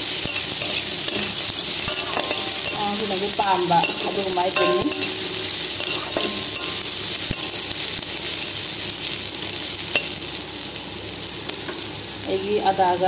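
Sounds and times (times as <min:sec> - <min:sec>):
onions sizzling in hot oil: 0:00.0 - 0:13.0
metal spatula scraping a pan: 0:00.2 - 0:07.7.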